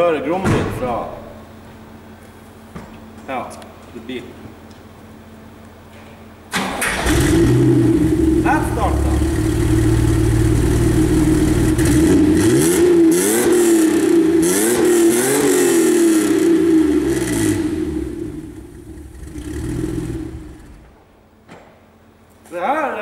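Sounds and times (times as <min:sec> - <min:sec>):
car engine idling and revving: 0:07.0 - 0:20.9.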